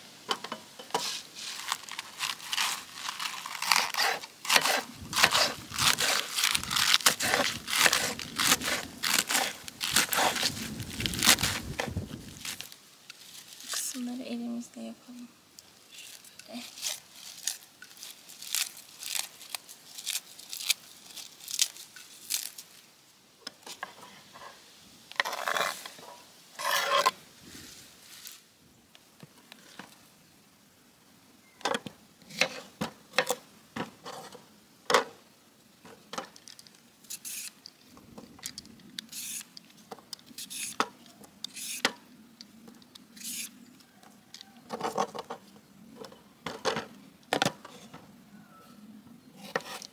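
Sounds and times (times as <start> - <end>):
lettuce leaves tearing and rustling: 1.0 - 14.2, 15.9 - 22.9.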